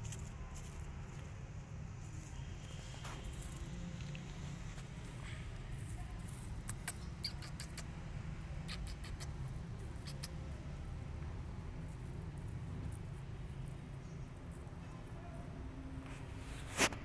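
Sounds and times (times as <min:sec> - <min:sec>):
kitten licking clicks: 0:06.6 - 0:07.9, 0:08.6 - 0:09.4, 0:10.0 - 0:10.4.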